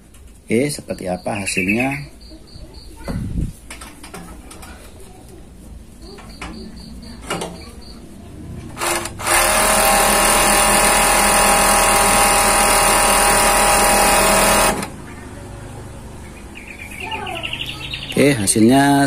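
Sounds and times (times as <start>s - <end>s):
overlock sewing machine running: 8.8s - 15.0s.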